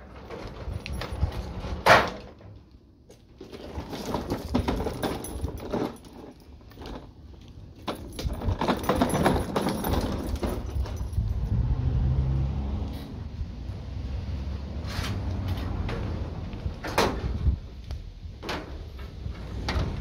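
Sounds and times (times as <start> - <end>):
lawn mower rattling over concrete: 0.0 - 2.5, 3.3 - 11.6.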